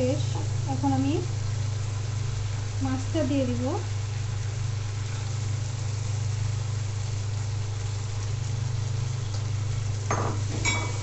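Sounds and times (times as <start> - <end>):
paste sizzling in hot oil: 0.0 - 11.0
steady low hum: 0.0 - 11.0.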